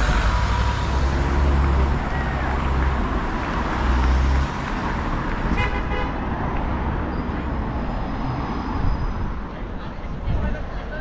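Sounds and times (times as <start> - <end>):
heavy vehicle engine rumbling: 0.0 - 8.0
vehicle horn toot: 5.5 - 6.2.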